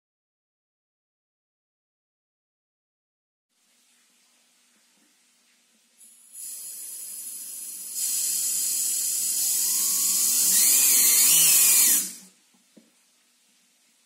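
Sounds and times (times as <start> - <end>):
compressed air hissing: 6.3 - 12.3
air turbine whine: 6.5 - 12.3.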